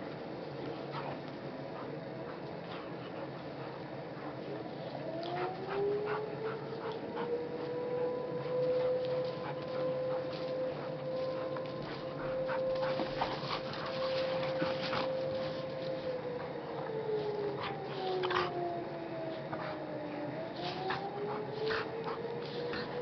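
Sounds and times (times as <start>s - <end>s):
dogs panting: 0.0s - 23.0s
scuffles in snow: 8.5s - 16.0s.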